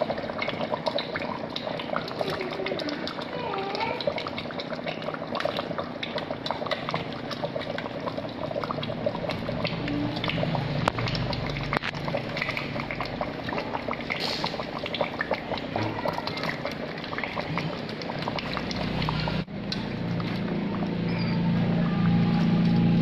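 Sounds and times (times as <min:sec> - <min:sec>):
soup boiling and bubbling: 0:00.0 - 0:23.0.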